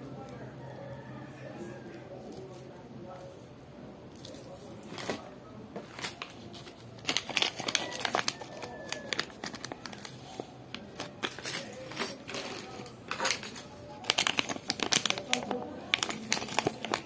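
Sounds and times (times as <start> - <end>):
plastic bag crinkling: 6.0 - 17.0.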